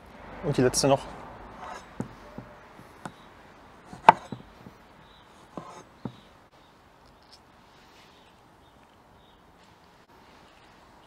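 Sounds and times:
knife knocking on cutting board: 4.0s - 4.5s, 5.6s - 6.2s.

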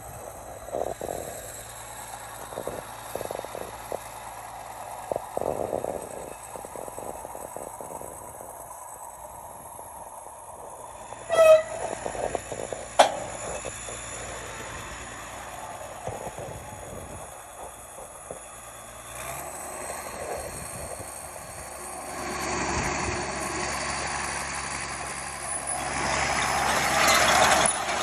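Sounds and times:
tractor humming: 0.0s - 28.0s
loud horn-like tone: 11.2s - 12.1s.

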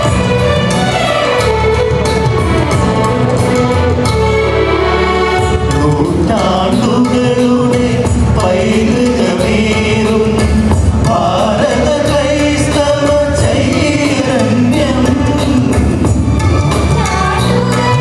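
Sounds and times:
instrumental accompaniment with beat: 0.0s - 18.0s
mixed choir singing: 8.4s - 14.9s.

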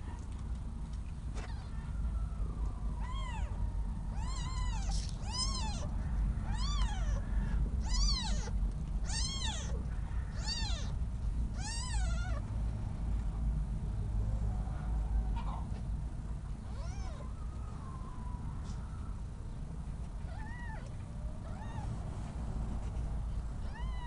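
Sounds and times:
kitten mewing: 3.0s - 12.4s, 23.6s - 24.0s.

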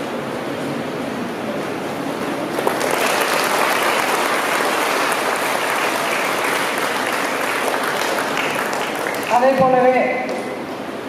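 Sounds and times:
audience clapping: 2.4s - 10.4s.

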